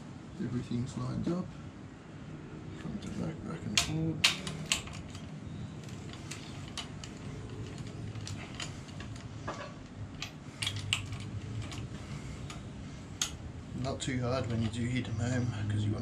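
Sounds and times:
low steady hum: 0.0 - 16.0
socket ratchet clicking: 3.8 - 9.3, 10.1 - 13.4.

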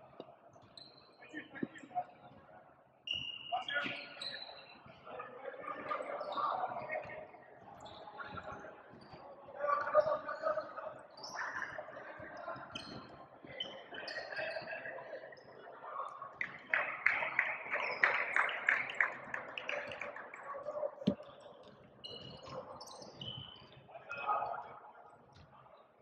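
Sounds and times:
voices of players and onlookers: 0.0 - 26.0.

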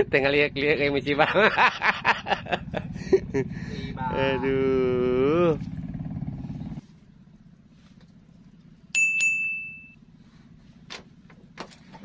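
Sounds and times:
low hum: 1.3 - 12.0
small bell-like ding: 8.9 - 10.0.

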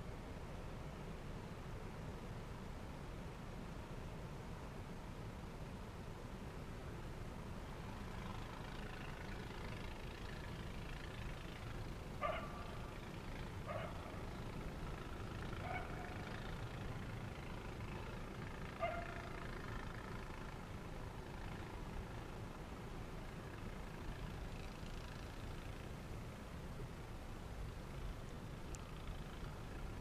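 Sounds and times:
animal calls: 15.5 - 16.5.

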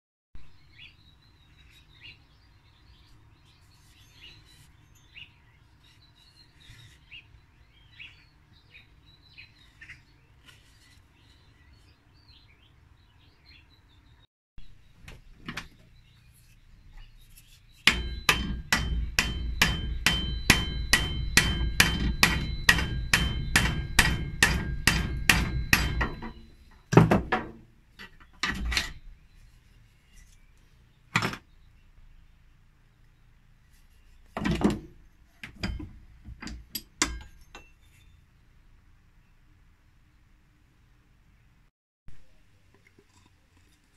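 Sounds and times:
hammer striking steel rod: 17.8 - 27.7, 36.8 - 37.7.

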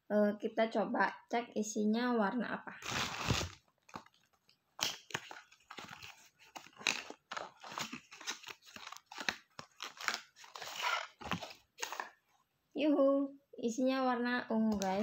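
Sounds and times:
cardboard box being opened: 2.8 - 3.6.

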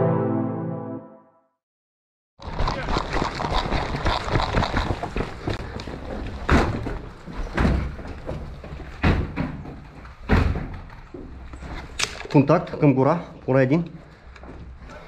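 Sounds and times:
heavy footsteps on rubble: 3.9 - 11.9.

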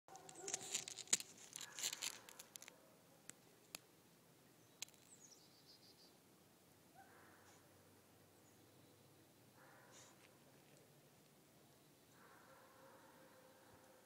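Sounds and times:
dog paws scraping icy snow: 0.1 - 2.7.

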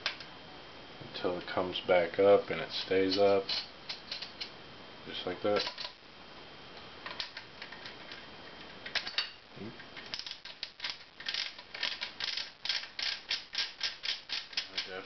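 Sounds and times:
metal cap ratcheting and scraping: 10.1 - 15.0.

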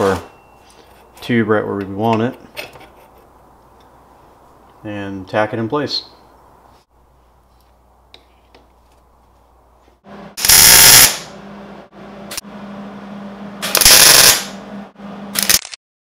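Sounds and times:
welding arc crackling: 10.4 - 11.3, 13.6 - 14.6.

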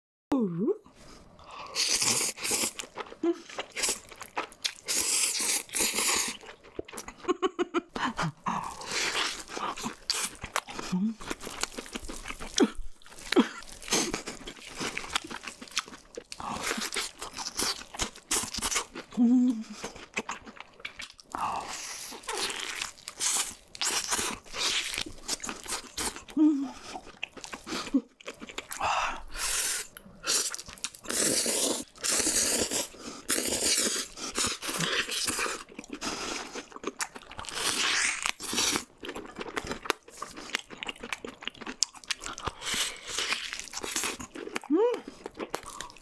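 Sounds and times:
chewing: 1.6 - 7.3, 8.7 - 28.8, 29.8 - 46.0
crunching fried chicken: 9.0 - 19.1, 30.4 - 46.0.

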